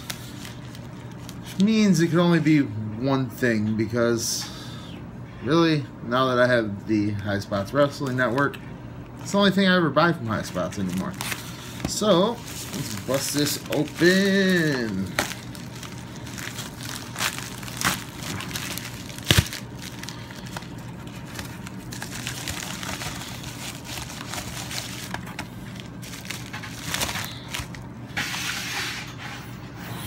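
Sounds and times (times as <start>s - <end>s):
steady low hum: 0.0s - 30.0s
package mailer rustling: 10.2s - 28.9s.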